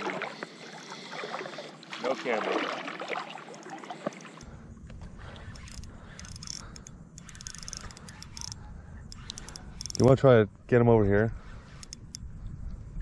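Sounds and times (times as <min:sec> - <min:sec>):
water lapping and splashing: 0:00.0 - 0:06.3
low wind rumble: 0:04.4 - 0:13.0.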